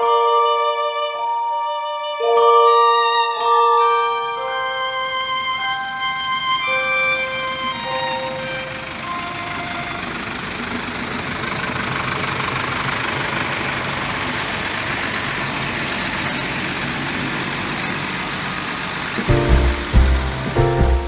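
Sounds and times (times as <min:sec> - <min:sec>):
violin music: 0:00.0 - 0:10.8, 0:19.2 - 0:21.0
tractor engines rumbling: 0:02.2 - 0:21.0.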